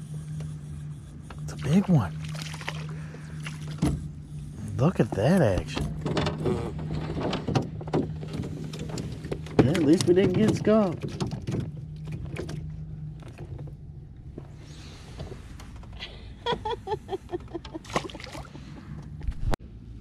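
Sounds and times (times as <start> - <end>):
boat engine hum: 0.0 - 20.0
fish splashing into water: 2.2 - 3.8, 17.8 - 18.6.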